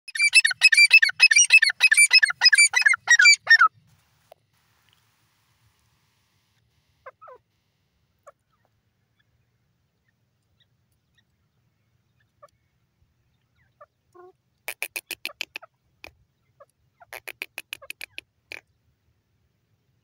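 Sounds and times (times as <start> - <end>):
francolin calling: 0.1 - 3.8, 7.0 - 7.5, 13.4 - 15.7.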